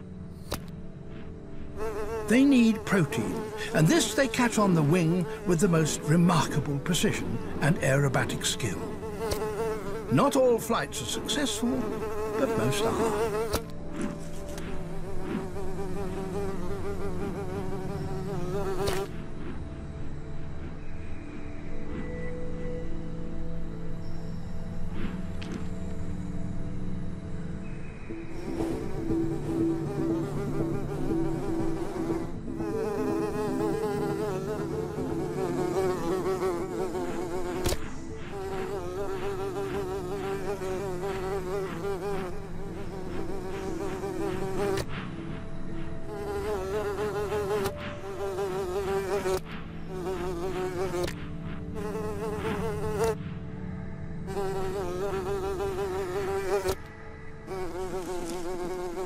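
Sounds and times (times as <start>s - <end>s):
small wings buzzing in flight: 0.0s - 19.8s, 28.3s - 53.3s, 54.3s - 56.9s, 57.5s - 59.0s.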